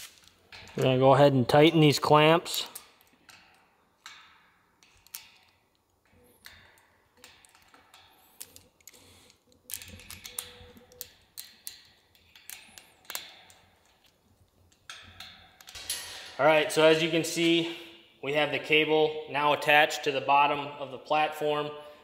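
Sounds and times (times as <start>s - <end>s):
wrench clicking on metal clamps: 2.5s - 16.3s.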